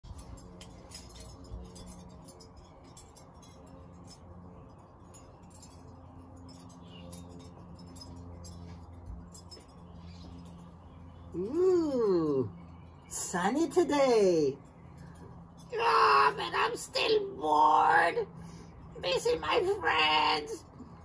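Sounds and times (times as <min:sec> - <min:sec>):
wind chimes ringing: 0:00.1 - 0:13.1.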